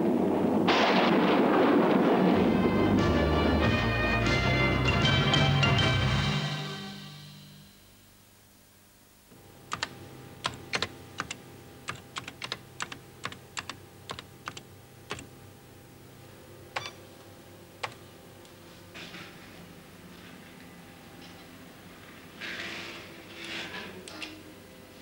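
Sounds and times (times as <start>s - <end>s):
steady hum: 7.1s - 20.9s
keyboard key clicks: 9.7s - 15.3s, 16.8s - 17.0s.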